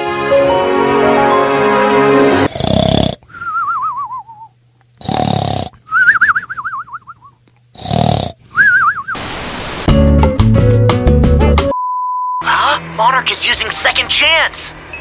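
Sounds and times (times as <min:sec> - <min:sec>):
cartoon snoring and whistle: 0:02.4 - 0:09.2
hiss burst: 0:09.2 - 0:09.9.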